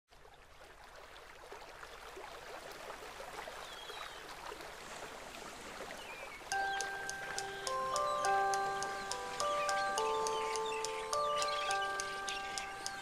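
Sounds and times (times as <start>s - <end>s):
rushing water: 0.1s - 13.0s
faint high chirps: 6.5s - 13.0s.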